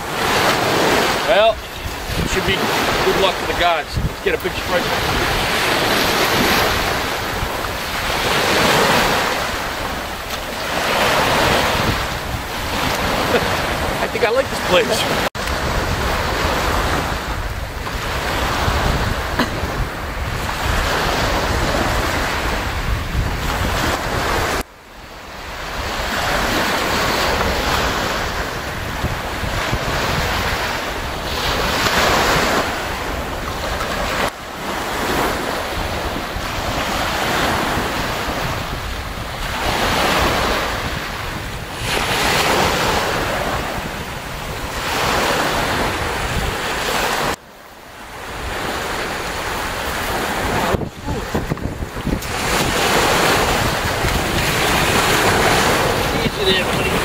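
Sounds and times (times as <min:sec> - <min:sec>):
waves washing up gravel beach: 0:00.0 - 0:24.6, 0:48.0 - 0:57.0
wind buffeting microphone: 0:00.0 - 0:24.6, 0:25.4 - 0:47.4, 0:48.2 - 0:57.0.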